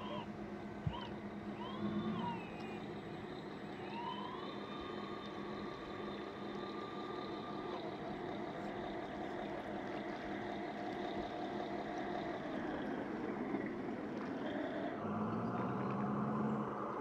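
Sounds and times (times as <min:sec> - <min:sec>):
siren wailing: 0:03.8 - 0:04.6.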